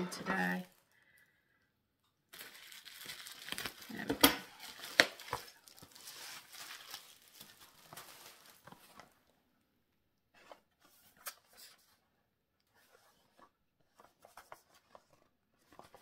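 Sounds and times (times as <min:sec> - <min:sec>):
plastic wrapping crinkling: 0:00.2 - 0:01.2, 0:02.3 - 0:09.3.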